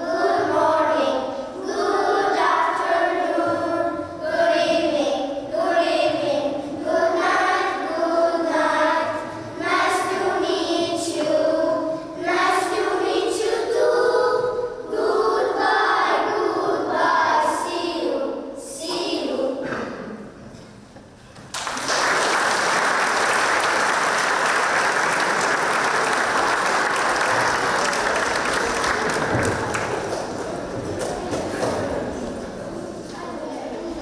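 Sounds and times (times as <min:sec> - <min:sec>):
children singing together: 0:00.0 - 0:20.2.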